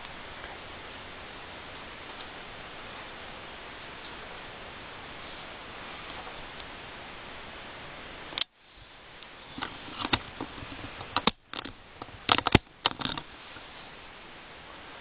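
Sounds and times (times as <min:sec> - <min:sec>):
steady hiss: 0:00.0 - 0:15.0
camera clicks and knocks: 0:11.1 - 0:13.2.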